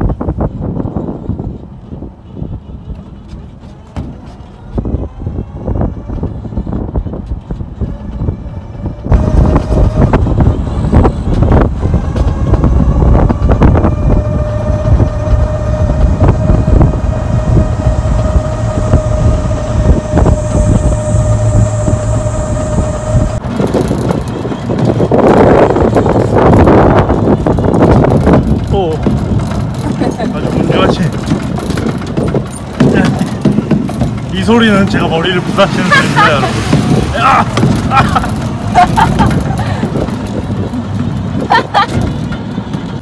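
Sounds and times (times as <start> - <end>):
wind buffeting microphone: 0.0 - 43.0
electric motor whine: 2.6 - 28.5
road knocks: 27.2 - 35.6, 36.2 - 43.0.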